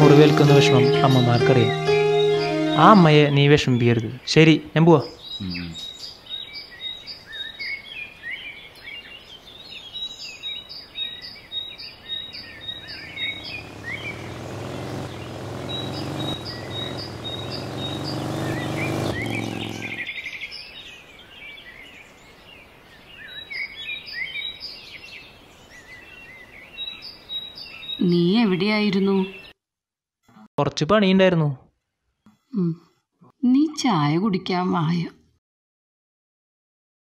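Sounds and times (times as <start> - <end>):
birds chirping: 0.0 - 29.5
motorcycle engine running: 12.4 - 20.1.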